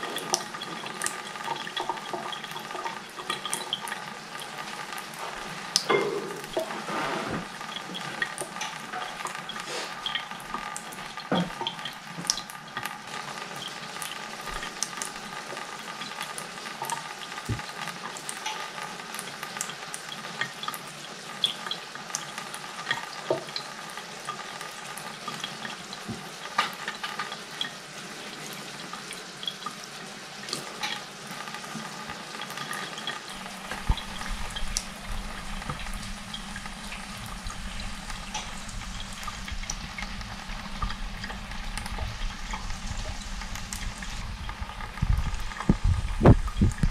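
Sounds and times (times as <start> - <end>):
tap water running into sink: 0.0 - 46.9
water splashing: 33.3 - 46.9.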